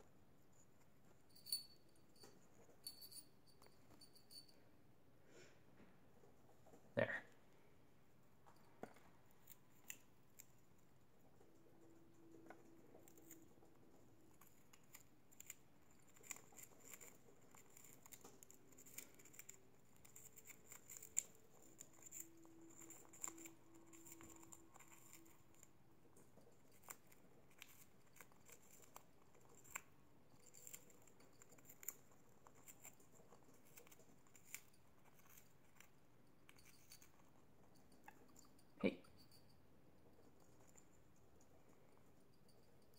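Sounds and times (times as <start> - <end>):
birds chewing wood: 9.4 - 37.4.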